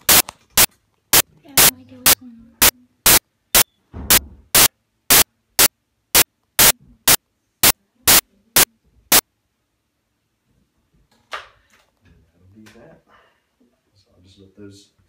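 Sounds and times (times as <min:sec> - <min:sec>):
bursts of static hiss: 0:00.0 - 0:09.2.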